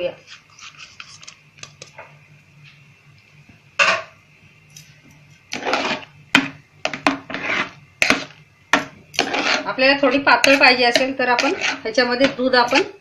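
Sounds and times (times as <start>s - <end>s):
ladle scraping metal pot: 5.5s - 13.0s.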